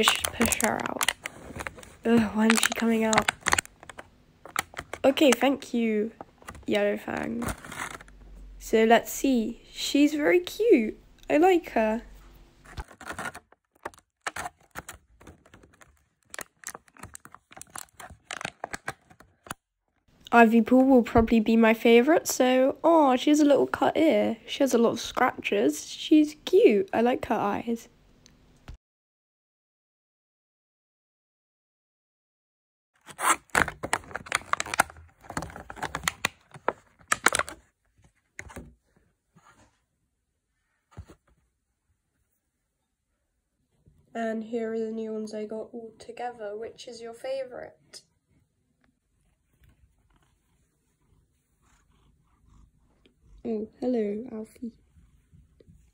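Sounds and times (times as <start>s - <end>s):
plastic blister tray crackling: 0.0s - 8.2s, 12.7s - 19.6s, 33.0s - 37.7s
plastic packaging crinkling: 0.0s - 8.2s, 12.7s - 19.6s, 33.0s - 37.7s.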